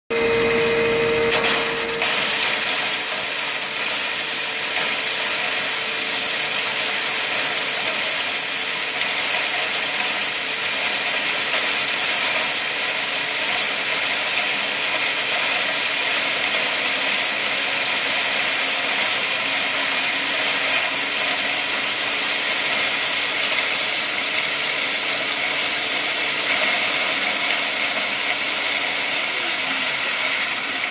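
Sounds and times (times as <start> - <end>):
hammer mill grinding plastic: 0.1 - 30.9.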